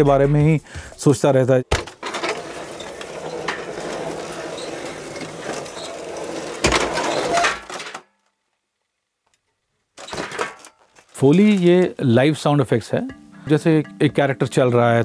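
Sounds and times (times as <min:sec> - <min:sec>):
heavy metal chair clanks: 0:01.7 - 0:08.0
metal folding chairs scraping: 0:01.8 - 0:08.0.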